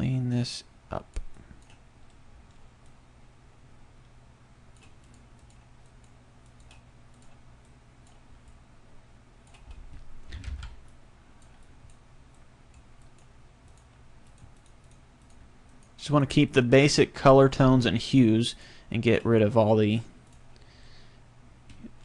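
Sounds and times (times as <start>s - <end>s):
low steady hum: 0.0s - 22.0s
computer clicks: 1.1s - 3.0s, 4.7s - 8.6s, 9.4s - 16.0s.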